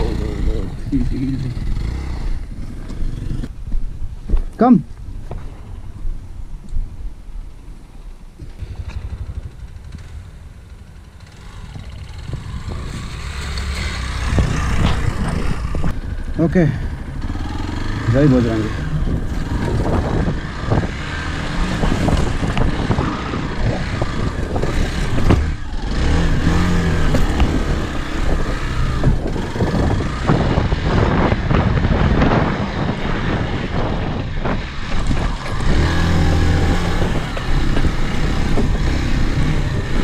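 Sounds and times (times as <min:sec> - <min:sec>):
motorcycle engine under throttle: 0:00.0 - 0:03.5, 0:08.4 - 0:40.0
wheels and suspension clattering: 0:08.4 - 0:40.0.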